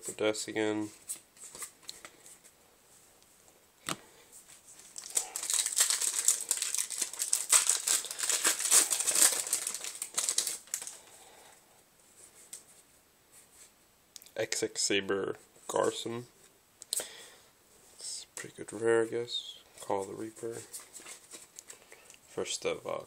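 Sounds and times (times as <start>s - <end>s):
foil wrapper crinkling: 4.8s - 11.1s.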